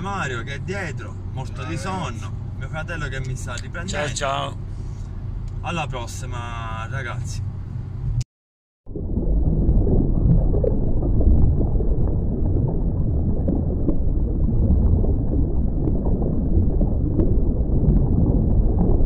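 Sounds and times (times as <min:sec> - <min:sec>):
water lapping and gurgling: 0:08.9 - 0:19.0.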